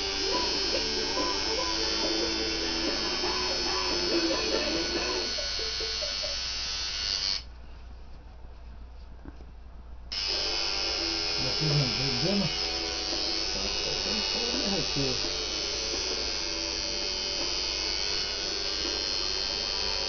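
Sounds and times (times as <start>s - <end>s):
tattoo machine buzzing: 0.0s - 7.5s, 10.1s - 20.0s.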